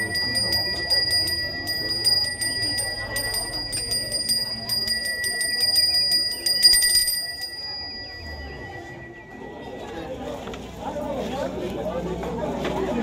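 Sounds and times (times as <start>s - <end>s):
hand bell ringing: 0.0s - 9.6s.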